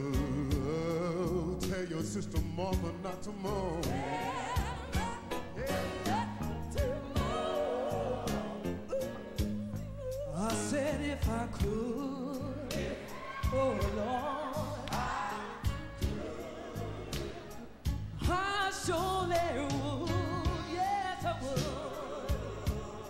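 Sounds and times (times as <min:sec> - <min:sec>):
woman singing gospel: 0:03.3 - 0:23.0
band with drums: 0:10.3 - 0:16.4.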